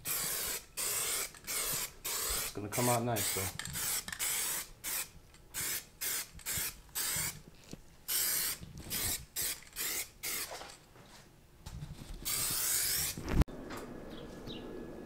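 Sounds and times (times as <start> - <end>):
aerosol spray can hissing: 0.0 - 7.4, 8.1 - 10.6, 12.2 - 13.4.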